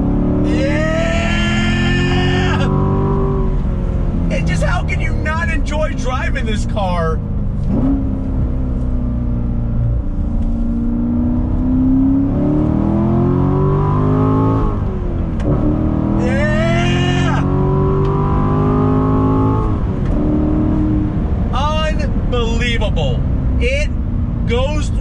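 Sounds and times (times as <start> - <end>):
car engine accelerating: 0.0 - 25.0
person whooping: 0.5 - 2.8, 16.2 - 17.5.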